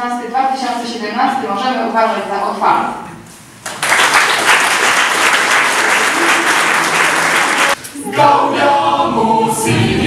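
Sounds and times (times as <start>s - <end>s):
audience applauding: 3.6s - 7.8s.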